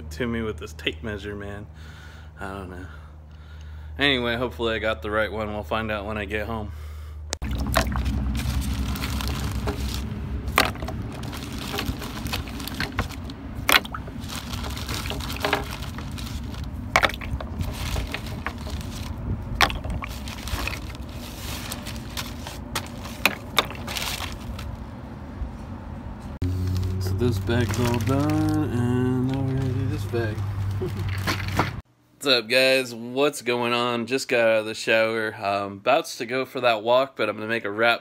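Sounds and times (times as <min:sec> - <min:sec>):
steady low rumble: 0:07.2 - 0:31.8
water splashing: 0:07.4 - 0:24.6.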